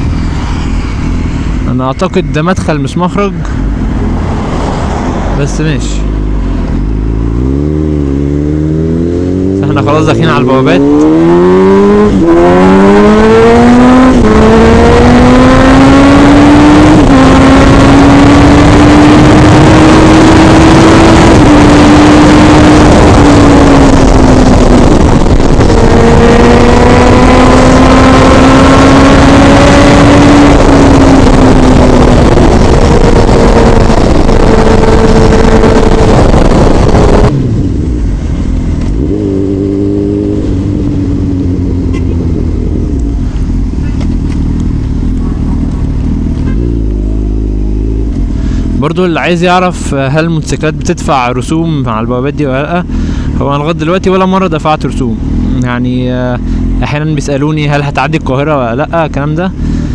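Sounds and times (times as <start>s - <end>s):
wind rushing on microphone: 0.0s - 47.1s
motorcycle engine accelerating: 0.0s - 49.1s, 54.6s - 59.9s.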